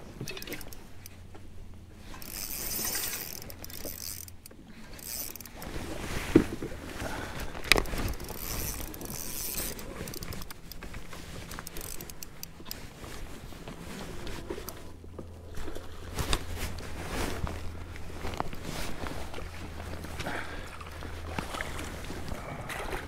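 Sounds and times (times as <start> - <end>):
low steady hum: 0.0 - 23.0
fishing reel clicks and knocks: 0.2 - 1.2, 2.1 - 5.7, 7.5 - 12.9.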